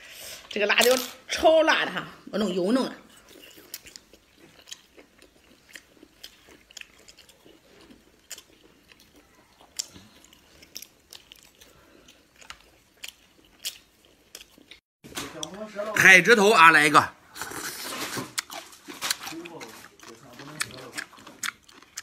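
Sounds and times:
crunchy chewing: 3.1 - 14.8, 17.3 - 22.0.

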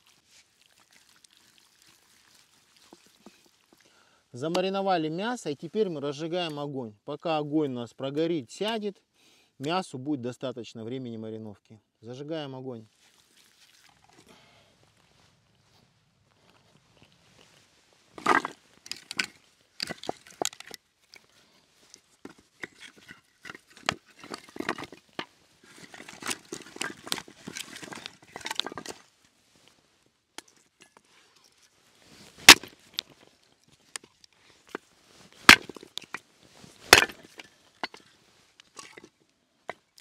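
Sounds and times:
dry wood snapping: 18.2 - 20.8, 32.4 - 33.2, 35.4 - 36.2, 36.8 - 38.0.

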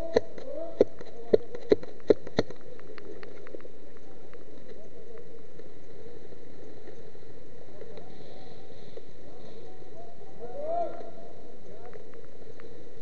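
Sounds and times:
faint clicks: 0.0 - 7.0.

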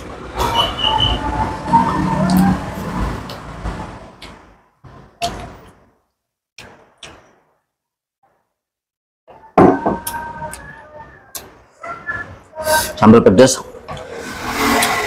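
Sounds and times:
background noise: 0.0 - 15.0
drinking glass knocks: 9.6 - 10.0.

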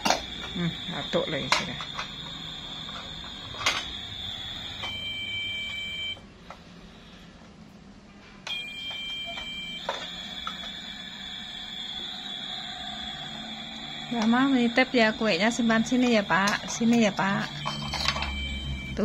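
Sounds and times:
high-pitched electronic tone: 8.5 - 19.0.

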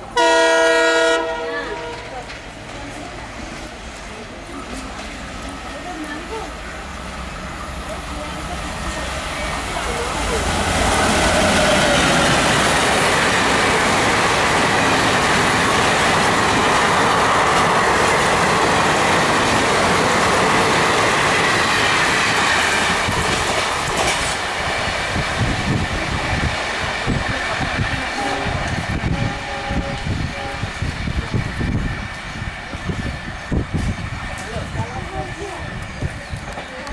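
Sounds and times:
rhythmic beat of wheels on rails: 0.0 - 36.9
train passing at speed: 0.0 - 36.9.

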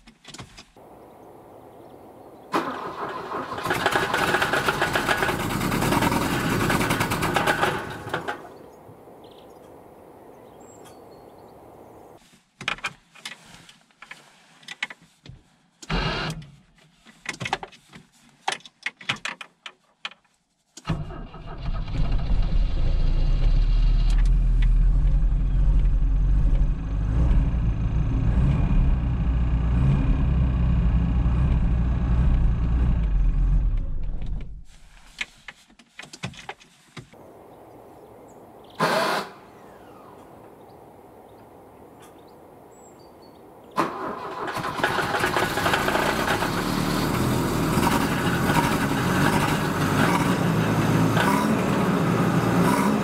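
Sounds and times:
car engine running: 21.9 - 34.6, 45.2 - 53.0.

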